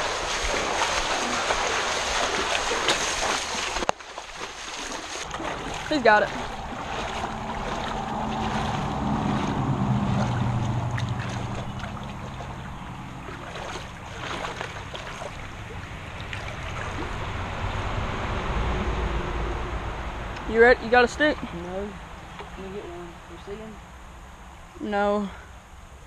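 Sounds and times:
wading through creek water: 0:00.0 - 0:19.2, 0:20.4 - 0:23.8
wind rumbling on microphone: 0:05.2 - 0:20.8.

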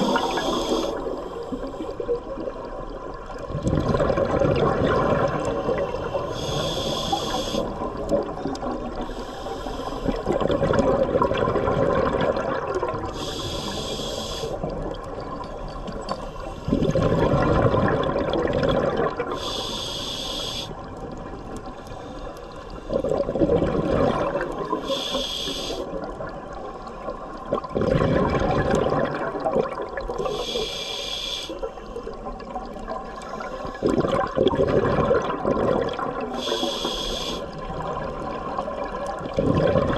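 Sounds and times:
regulator inhale hiss: 0:00.0 - 0:02.0, 0:05.6 - 0:07.8, 0:09.0 - 0:10.3, 0:13.1 - 0:14.6, 0:19.3 - 0:20.8, 0:21.9 - 0:23.0, 0:24.7 - 0:25.9, 0:30.2 - 0:32.1, 0:36.4 - 0:37.6
exhaled bubbles gushing: 0:00.0 - 0:09.1, 0:10.0 - 0:13.8, 0:16.7 - 0:19.6, 0:22.8 - 0:25.0, 0:25.9 - 0:30.4, 0:32.1 - 0:36.8, 0:37.5 - 0:39.9.

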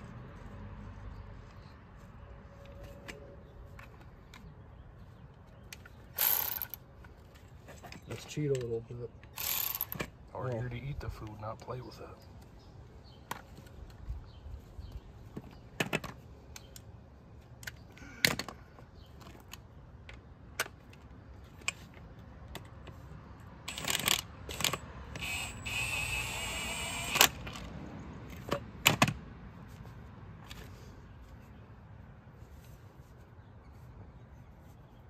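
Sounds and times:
cordless power tool running: 0:25.2 - 0:27.3.

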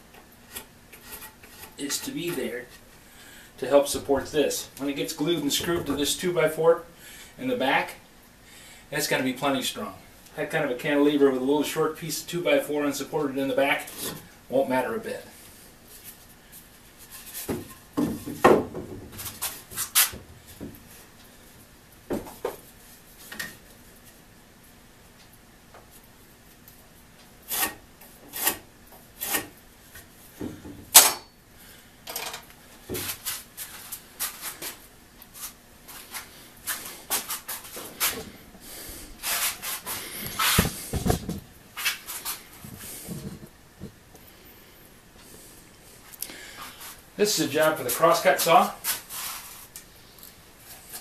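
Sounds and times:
wood knocking and scraping: 0:17.1 - 0:20.8, 0:40.3 - 0:41.5.

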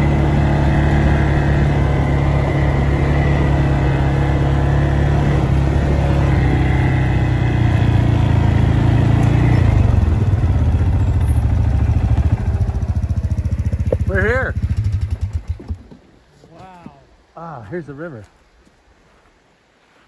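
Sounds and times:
atv engine running and idling: 0:00.0 - 0:16.0.

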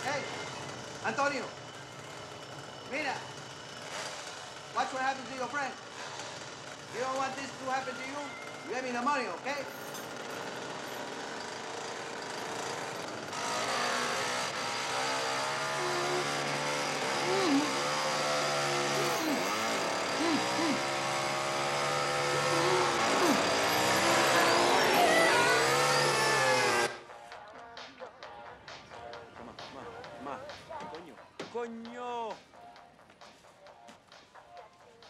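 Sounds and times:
chainsaw revving: 0:00.0 - 0:27.0.

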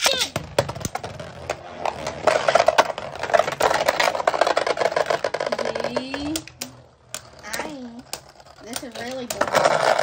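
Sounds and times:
spinning tops whirring and rattling: 0:00.0 - 0:10.0.

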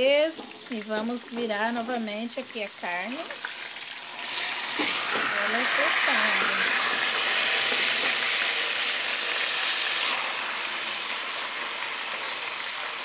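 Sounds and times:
meat sizzling in hot fat: 0:00.0 - 0:13.0.

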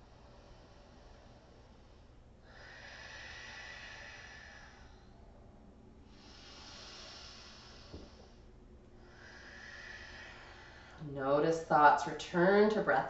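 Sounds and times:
woman breathing through nose: 0:00.0 - 0:05.4, 0:06.0 - 0:11.0.

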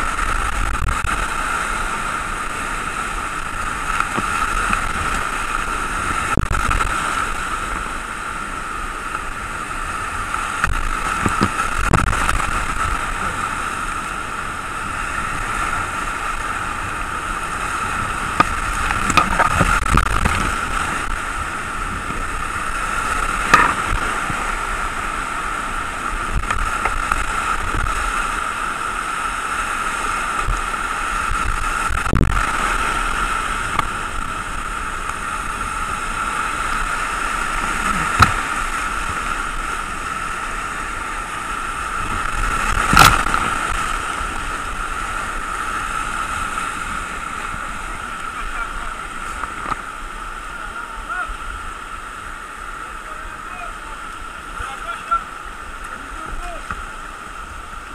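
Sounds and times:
rapids rushing: 0:00.0 - 0:57.9
paddle splashes and knocks: 0:10.3 - 0:13.2, 0:18.3 - 0:21.2, 0:23.1 - 0:24.5, 0:37.7 - 0:39.3, 0:42.2 - 0:44.4.

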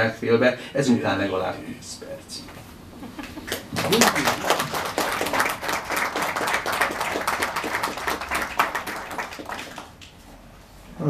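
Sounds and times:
audience applauding: 0:03.2 - 0:10.1.

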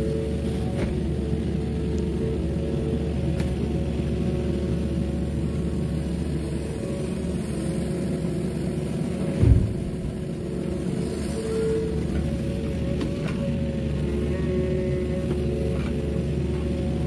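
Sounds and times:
excavator diesel engine under load: 0:00.0 - 0:17.0
heavy thud of dirt in truck bed: 0:09.3 - 0:10.1.

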